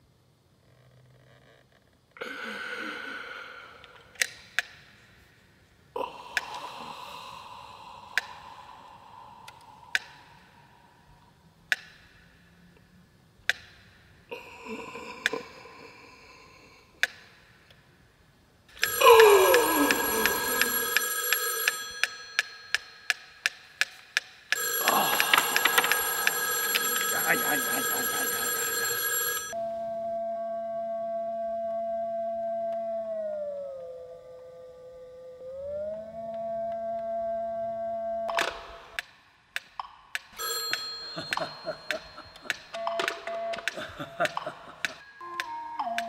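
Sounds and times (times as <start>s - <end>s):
loud bell-like ringing: 18.8s - 23.4s, 24.6s - 29.6s, 40.4s - 43.2s
ringing sounds: 18.8s - 23.8s
metronome ticking: 42.4s - 46.0s.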